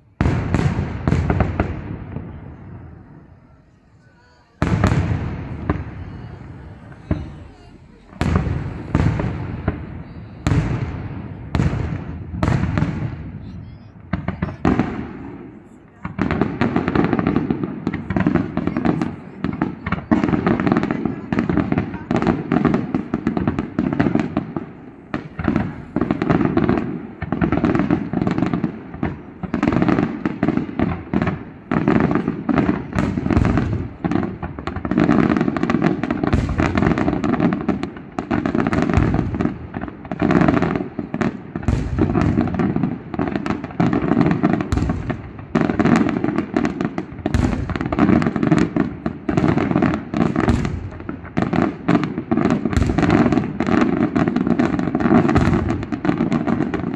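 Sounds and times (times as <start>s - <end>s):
firework bangs and crackle: 0.0s - 56.9s.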